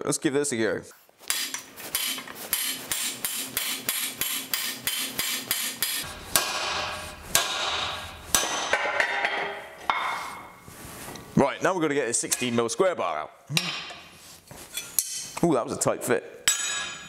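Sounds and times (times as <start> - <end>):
hammer striking steel drift: 1.3 - 10.3.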